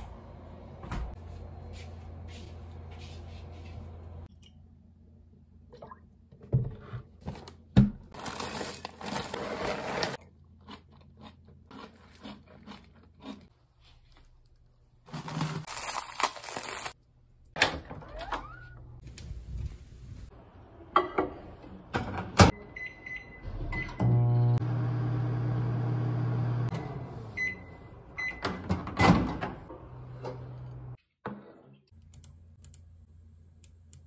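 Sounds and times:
crunchy chewing: 10.6s - 13.5s.

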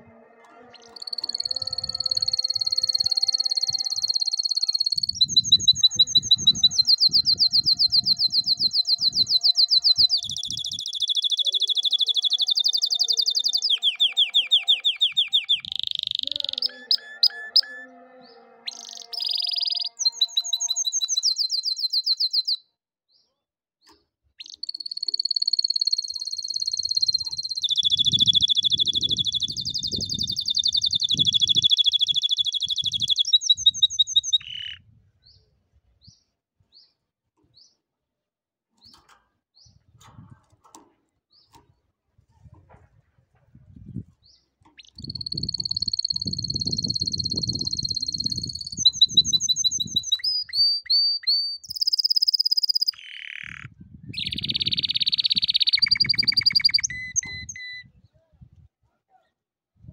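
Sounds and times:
canary singing trills: 0.0s - 22.6s, 24.4s - 34.8s, 44.6s - 57.9s.

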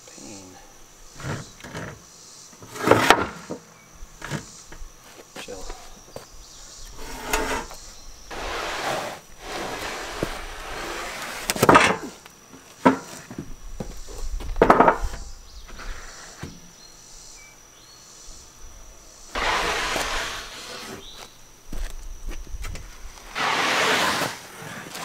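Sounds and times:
wood scraping over metal frame: 1.1s - 2.0s, 2.6s - 4.6s, 6.9s - 12.2s, 12.8s - 16.6s, 19.3s - 21.3s, 23.2s - 25.0s.

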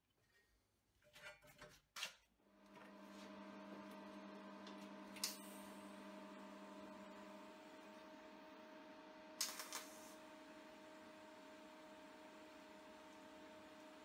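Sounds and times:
welder electrical hum: 2.4s - 14.0s
welding arc crackle: 5.0s - 6.8s, 9.4s - 10.4s.

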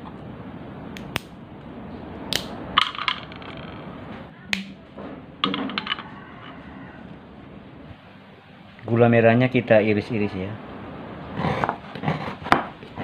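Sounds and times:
cinnamon sticks snapping: 1.0s - 1.4s, 2.3s - 2.6s.

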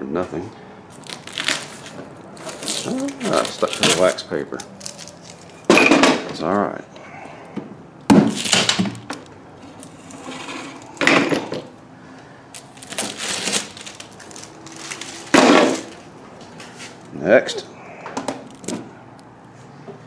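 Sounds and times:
paper and plastic film crackling: 0.9s - 5.7s, 12.5s - 17.1s.

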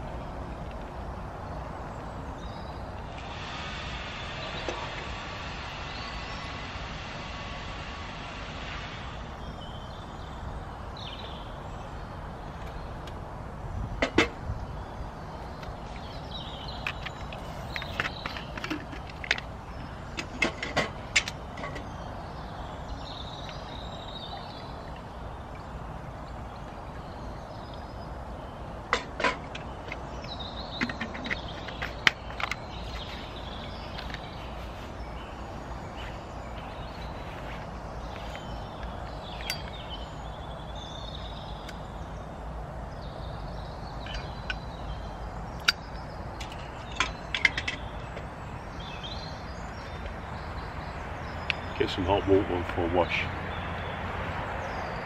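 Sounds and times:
birds calling: 0.0s - 55.0s
sharp clicks and knocks: 28.9s - 32.7s, 45.6s - 48.3s.

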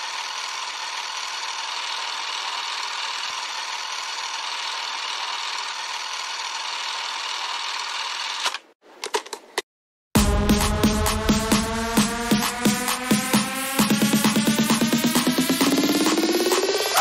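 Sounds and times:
film projector whirring: 0.0s - 8.7s.

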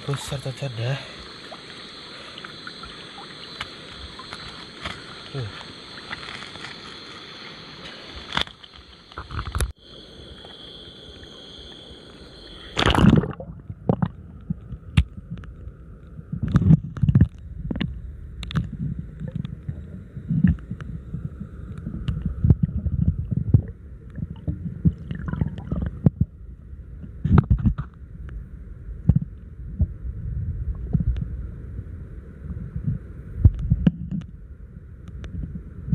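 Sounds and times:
underwater gurgling: 0.0s - 6.2s, 7.4s - 27.9s
faint hiss: 0.0s - 12.9s
microphone splashing into water: 12.7s - 15.2s, 16.4s - 26.3s.

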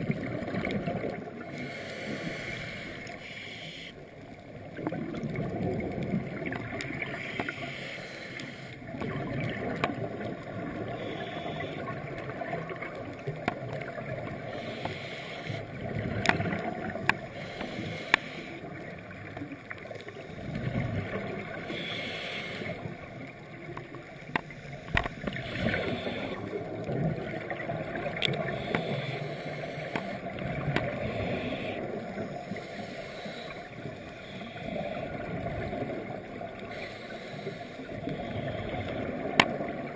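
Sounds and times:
exhaled bubbles gurgling: 0.0s - 3.2s, 4.0s - 7.7s, 8.8s - 39.9s
scuba regulator breathing: 1.4s - 4.1s, 7.1s - 8.9s, 10.8s - 12.0s, 14.4s - 15.8s, 17.0s - 18.8s, 21.5s - 23.0s, 24.9s - 26.7s, 28.2s - 35.9s, 36.6s - 39.3s.

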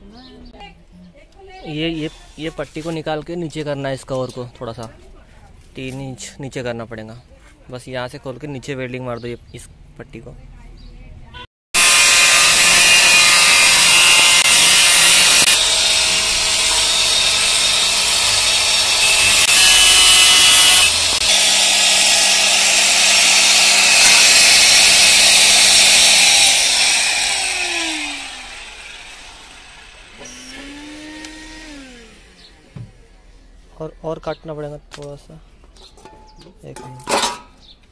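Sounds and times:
angle grinder cutting steel: 11.8s - 32.8s
grinder motor whining down: 11.8s - 33.0s.

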